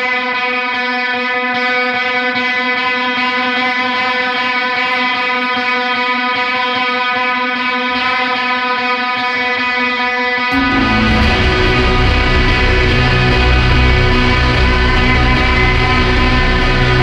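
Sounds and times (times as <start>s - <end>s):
electric guitar drone: 0.0s - 17.0s
distorted noise wall: 10.6s - 17.0s.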